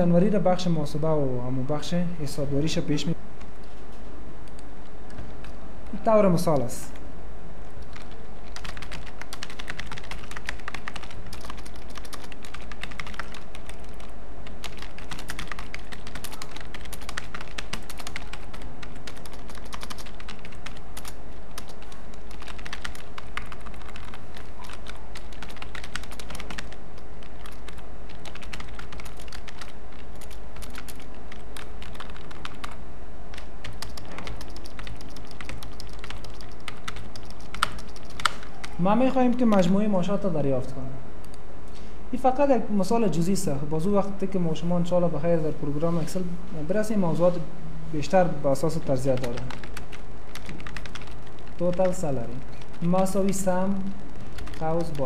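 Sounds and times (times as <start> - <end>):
steady low hum: 0.0 - 55.0
keyboard typing: 7.8 - 39.7, 48.6 - 55.0.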